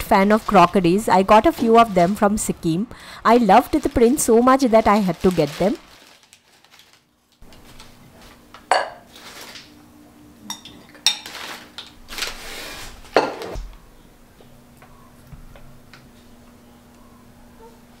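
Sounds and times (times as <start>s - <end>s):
newspaper rustling: 0.0s - 2.6s, 3.2s - 8.5s, 9.1s - 9.7s, 11.2s - 13.2s
ceramic dishes clinking: 8.7s - 9.0s, 10.5s - 11.3s.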